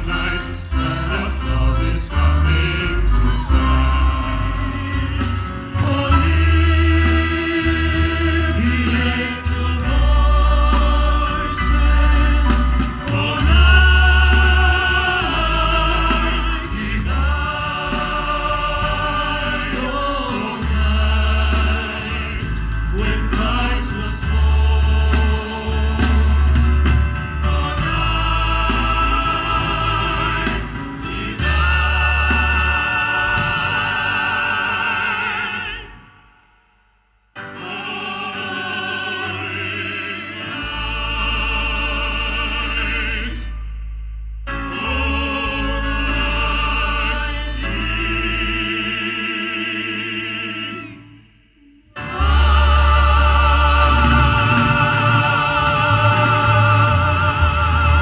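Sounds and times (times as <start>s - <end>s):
classical singing with vibrato: 0.0s - 26.6s, 27.4s - 36.2s, 37.4s - 43.6s, 44.6s - 58.0s
deep bass line: 52.1s - 58.0s.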